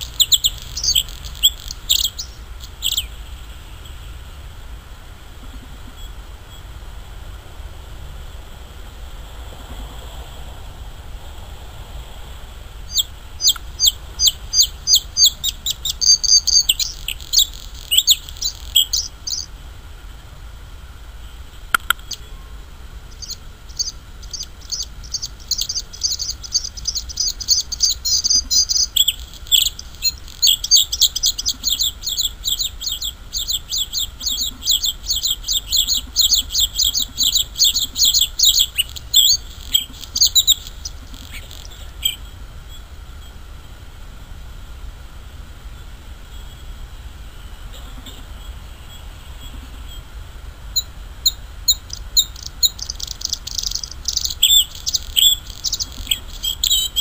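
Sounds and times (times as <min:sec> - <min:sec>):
bird singing high ringing notes: 0:00.0 - 0:03.9, 0:12.9 - 0:19.5, 0:23.1 - 0:43.4, 0:50.8 - 0:57.0.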